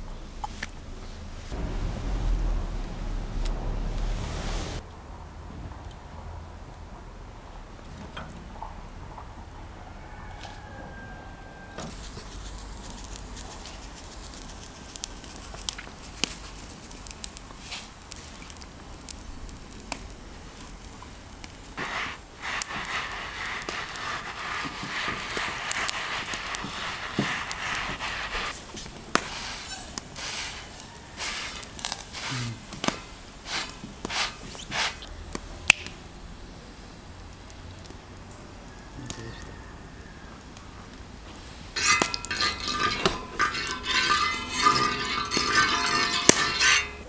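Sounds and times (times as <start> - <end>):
wood fire crackling: 0.0 - 9.6, 11.9 - 38.9, 39.9 - 47.0
salt scrubbed on steel griddle: 11.9 - 20.8, 21.4 - 35.1, 41.4 - 47.0.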